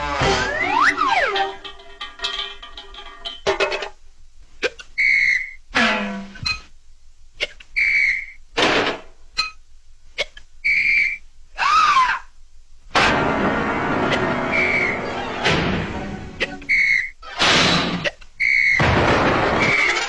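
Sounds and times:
cartoon whistle tone: 5.0s - 5.6s, 7.8s - 8.4s, 10.6s - 11.2s, 16.6s - 17.2s, 18.4s - 18.8s.

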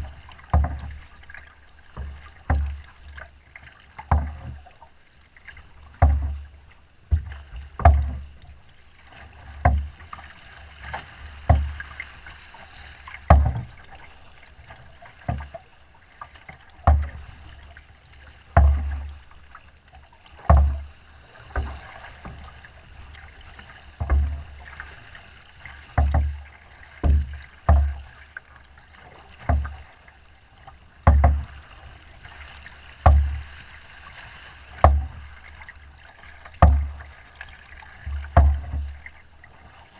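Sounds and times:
hiss of wind-driven water: 0.0s - 4.8s
waves slapping boat hull: 0.0s - 39.9s.

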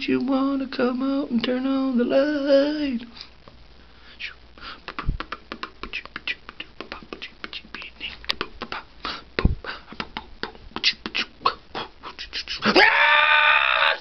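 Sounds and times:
man beatboxing clicks and pops: 4.2s - 12.8s.

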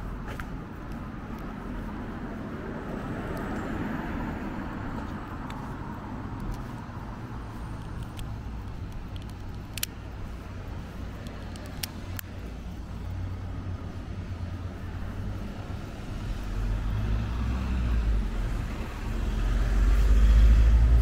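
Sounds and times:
background traffic: 0.0s - 21.0s
car passing: 1.5s - 8.6s, 9.8s - 21.0s
light clicks: 7.7s - 13.2s.

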